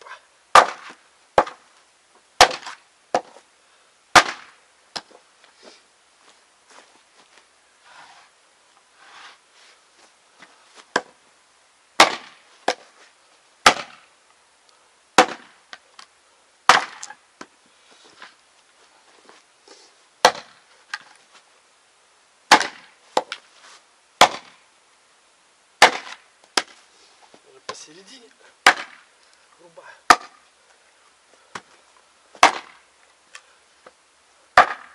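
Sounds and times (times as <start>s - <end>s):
axe chopping log: 0.5s - 1.6s, 2.4s - 3.4s, 4.1s - 5.2s, 10.9s - 11.2s, 12.0s - 12.8s, 13.6s - 14.1s, 15.2s - 15.8s, 16.7s - 17.5s, 20.2s - 21.1s, 22.5s - 23.4s, 24.2s - 24.6s, 25.8s - 26.8s, 28.6s - 29.1s, 30.0s - 30.4s, 32.4s - 32.8s, 34.6s - 34.9s
faint rustling: 5.1s - 11.0s, 17.6s - 20.1s, 23.0s - 23.9s, 26.7s - 28.4s.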